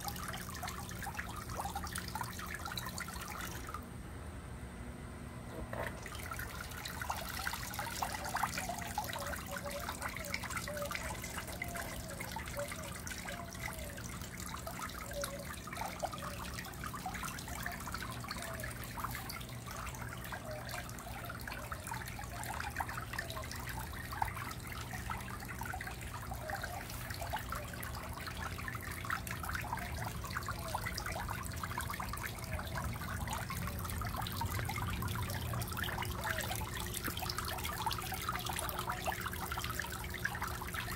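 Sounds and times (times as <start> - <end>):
water trickling into pond: 0.0 - 4.0, 5.5 - 40.9.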